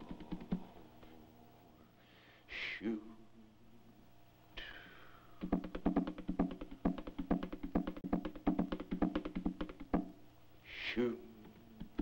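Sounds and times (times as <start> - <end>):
hand percussion fast knocks: 0.0 - 0.7, 5.4 - 10.2, 11.5 - 12.0.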